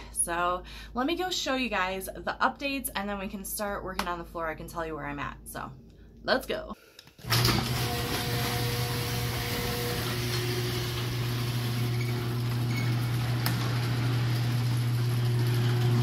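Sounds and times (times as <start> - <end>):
garage door opener motor hum: 7.2 - 16.0
garage door rolling up: 7.2 - 16.0.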